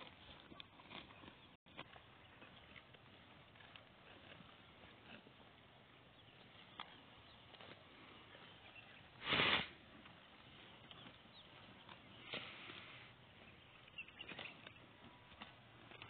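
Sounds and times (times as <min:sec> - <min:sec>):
grass being torn and chewed: 0:00.0 - 0:16.0
buffalo snorting: 0:07.2 - 0:09.8, 0:10.5 - 0:13.2.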